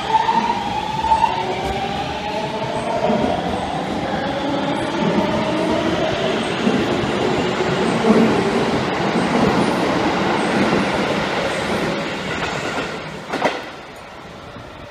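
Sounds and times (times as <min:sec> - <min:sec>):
electric train passing: 0:00.0 - 0:14.9.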